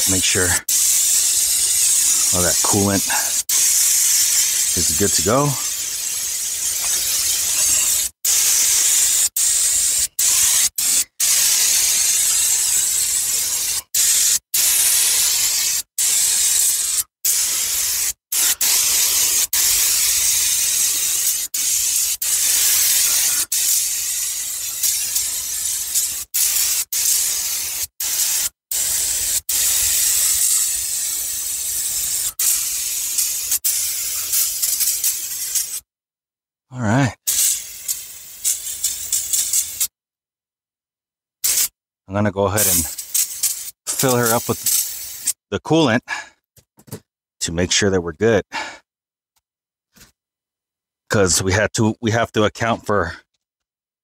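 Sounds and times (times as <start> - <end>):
aerosol spray hissing: 0.0 - 35.8, 37.3 - 39.9, 41.4 - 41.7, 42.6 - 45.4.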